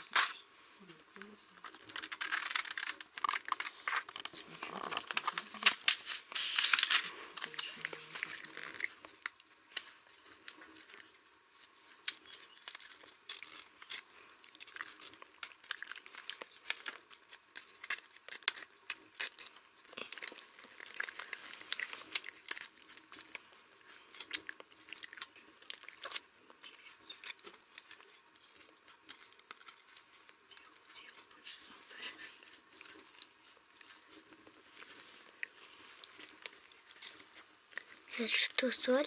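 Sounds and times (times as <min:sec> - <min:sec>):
paper rustling and crinkling: 0:01.2 - 0:24.4.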